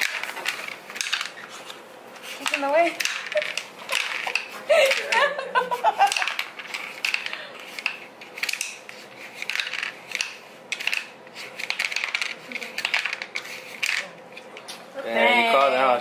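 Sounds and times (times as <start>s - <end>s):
wooden discs clacking on board: 0.0s - 1.5s, 2.4s - 5.3s, 6.0s - 14.2s.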